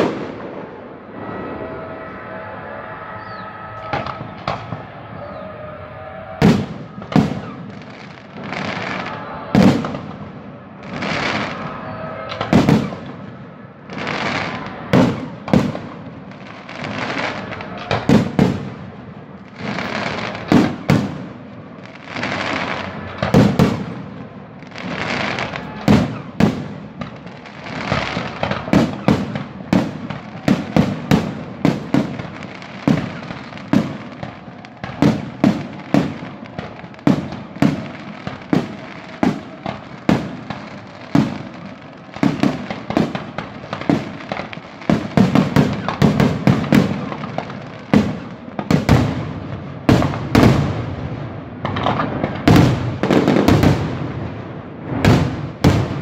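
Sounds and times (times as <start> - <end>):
hissing crackling firework tails: 0.0 - 56.0.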